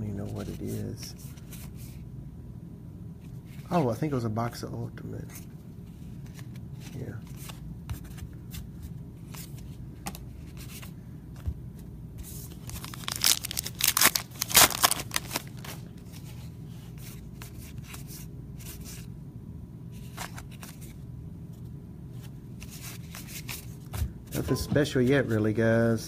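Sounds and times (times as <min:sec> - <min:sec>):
cards flicking and rustling: 0:06.2 - 0:19.1, 0:20.0 - 0:21.0, 0:22.2 - 0:24.4.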